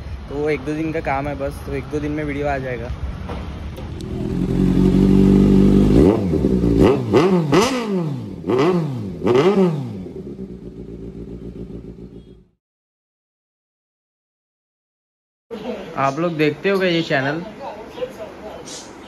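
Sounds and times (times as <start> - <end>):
motorcycle engine idling and revving: 0.0 - 12.6.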